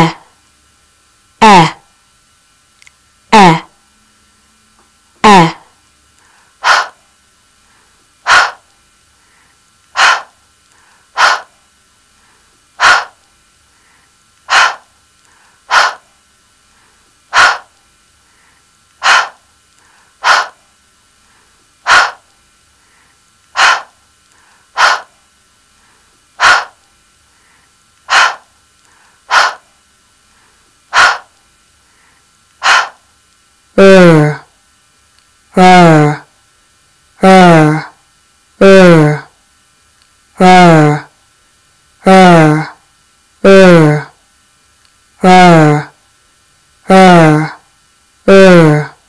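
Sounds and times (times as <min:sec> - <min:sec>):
person saying breathy h sounds: 0:00.0 - 0:00.3, 0:01.4 - 0:01.9, 0:03.3 - 0:03.8, 0:05.2 - 0:05.8, 0:06.6 - 0:07.0, 0:10.0 - 0:10.4, 0:11.2 - 0:11.6, 0:15.7 - 0:16.0, 0:19.0 - 0:19.4, 0:20.2 - 0:20.6, 0:21.9 - 0:22.2, 0:23.6 - 0:24.0, 0:24.7 - 0:25.2, 0:29.3 - 0:29.7, 0:32.6 - 0:33.0, 0:33.8 - 0:34.5, 0:35.5 - 0:36.3, 0:37.2 - 0:38.0, 0:38.6 - 0:39.4, 0:40.4 - 0:41.2, 0:42.0 - 0:42.8, 0:43.4 - 0:44.2, 0:45.2 - 0:46.0, 0:46.8 - 0:47.6, 0:48.3 - 0:49.0.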